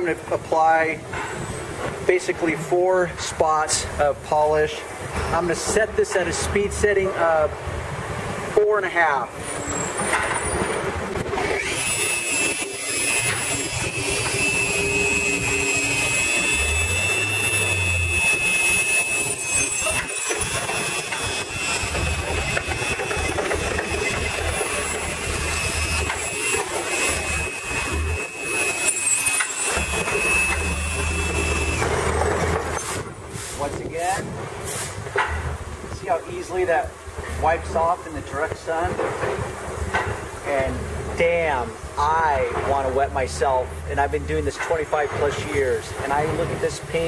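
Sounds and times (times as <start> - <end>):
polisher high whine: 11.4 - 33.1.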